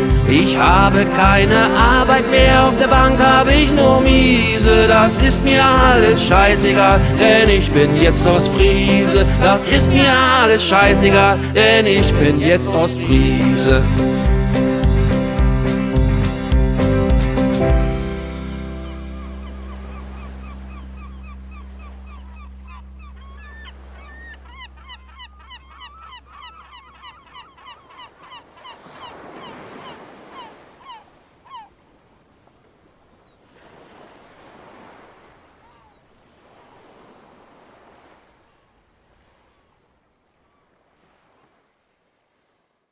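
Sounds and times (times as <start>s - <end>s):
held music chord: 0.0s - 25.1s
flock of birds calling: 18.8s - 31.7s
waves washing onto beach: 33.4s - 42.6s.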